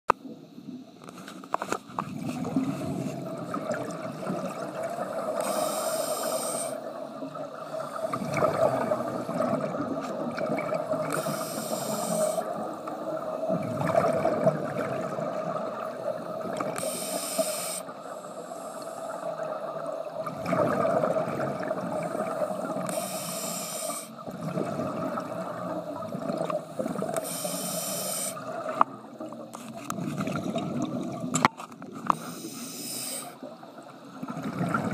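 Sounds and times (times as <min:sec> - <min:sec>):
exhaled bubbles rumbling: 0:01.9 - 0:05.5, 0:06.8 - 0:11.4, 0:12.4 - 0:16.8, 0:19.1 - 0:22.9, 0:24.2 - 0:27.2, 0:28.4 - 0:32.1, 0:33.4 - 0:34.9
regulator inhalation hiss: 0:05.3 - 0:07.0, 0:11.0 - 0:13.1, 0:16.1 - 0:19.4, 0:22.2 - 0:24.2, 0:26.7 - 0:28.5, 0:32.2 - 0:33.5.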